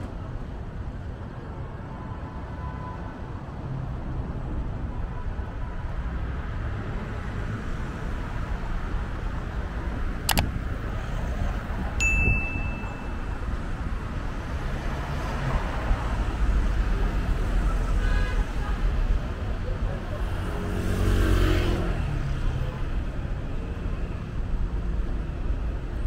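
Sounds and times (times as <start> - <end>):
city traffic hum: 0.0 - 26.0
sharp click: 10.2 - 10.6
high bell-like ding: 12.0 - 13.5.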